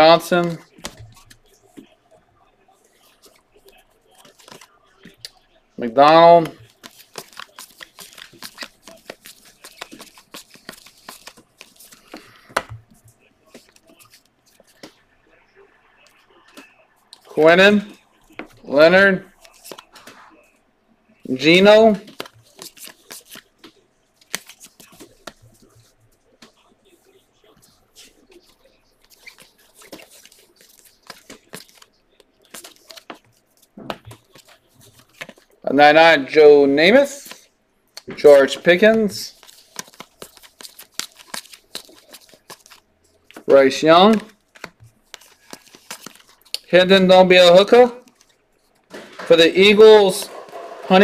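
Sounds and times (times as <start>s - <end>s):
trading cards flipped by hand: 4.2s - 5.4s, 6.1s - 15.0s, 19.3s - 20.2s, 21.4s - 26.5s, 29.0s - 35.5s, 38.0s - 51.0s.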